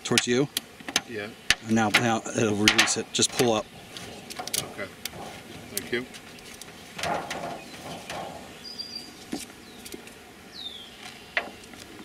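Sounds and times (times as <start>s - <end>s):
strap webbing rustling: 0.9s - 10.2s
bird chirping: 1.0s - 12.0s.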